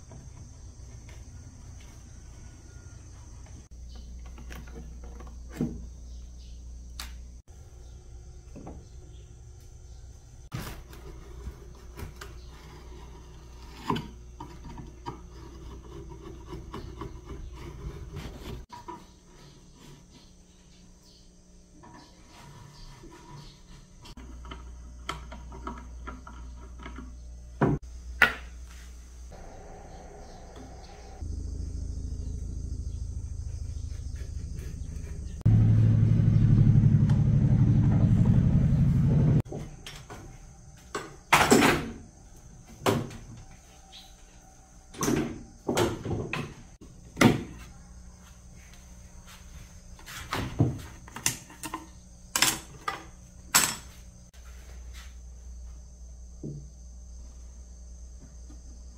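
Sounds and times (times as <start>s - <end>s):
high cricket chirp: 0.0s - 10.5s, 27.2s - 35.5s, 39.4s - 58.9s
low motor hum: 29.3s - 39.5s.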